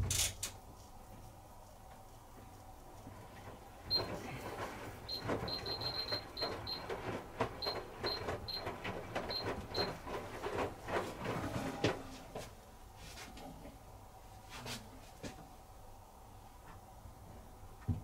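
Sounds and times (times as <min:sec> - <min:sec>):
washing machine drum tumbling: 0:03.1 - 0:12.4.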